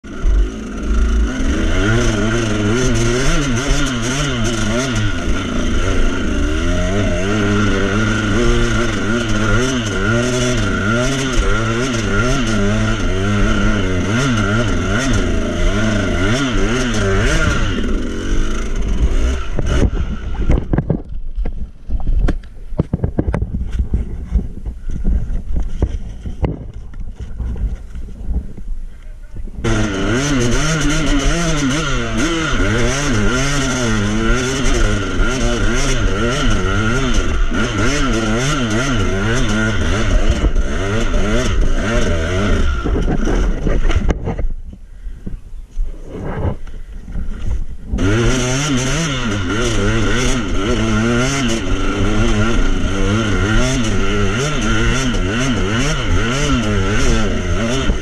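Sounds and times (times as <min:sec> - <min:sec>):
dirt bike engine revving: 0:00.0 - 0:21.8, 0:29.6 - 0:45.1, 0:45.8 - 0:58.0.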